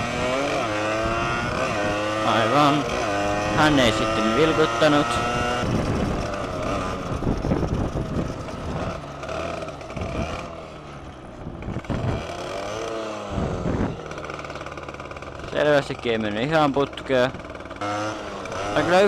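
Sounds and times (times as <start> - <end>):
motorcycle engine running: 0.0 - 19.0
wind buffeting microphone: 5.1 - 10.5, 11.4 - 12.4, 13.2 - 14.1.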